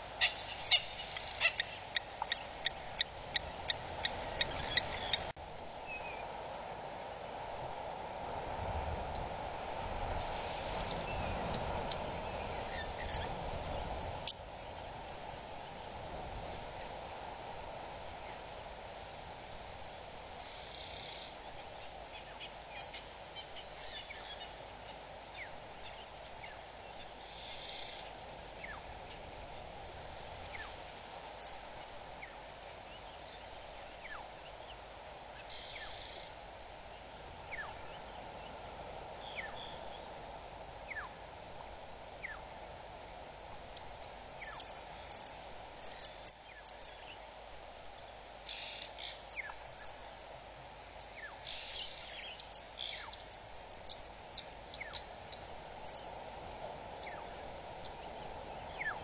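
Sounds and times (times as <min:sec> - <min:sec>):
steady hiss: 0:00.0 - 0:59.0
buzzy bird calls: 0:00.2 - 0:03.1.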